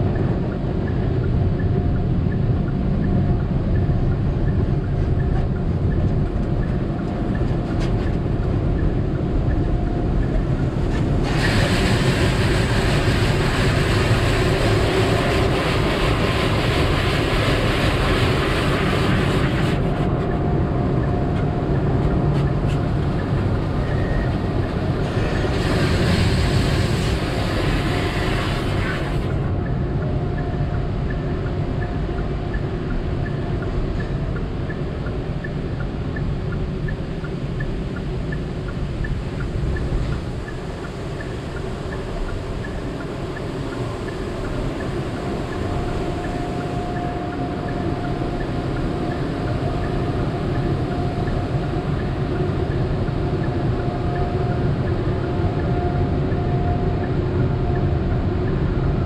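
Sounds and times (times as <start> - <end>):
car wash low rumble: 0.0 - 59.0
car wash loud hissing: 10.9 - 20.1, 22.9 - 29.4, 40.6 - 53.8.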